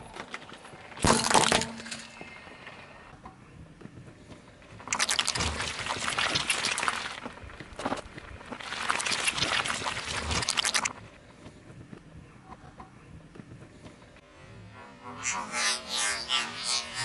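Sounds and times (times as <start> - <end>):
tyre squashing jelly: 4.9 - 8.0, 8.6 - 10.9.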